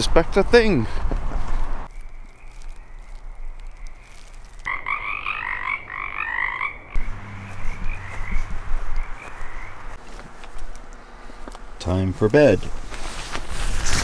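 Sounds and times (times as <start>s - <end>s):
low steady hum: 0.0s - 14.0s
frogs croaking: 1.9s - 10.0s.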